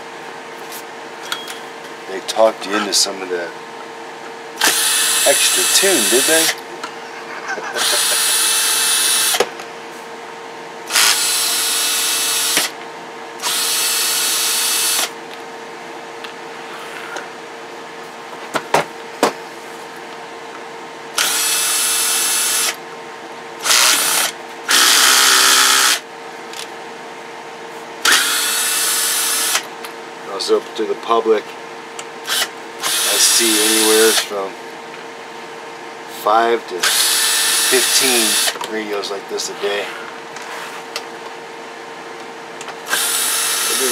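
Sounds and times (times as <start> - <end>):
cordless drill spinning: 4.6 - 6.6, 7.8 - 9.4, 10.9 - 12.7, 13.4 - 15.1, 21.2 - 22.8, 23.6 - 26.0, 28.0 - 29.7, 32.3 - 34.3, 36.8 - 38.6, 42.8 - 43.9.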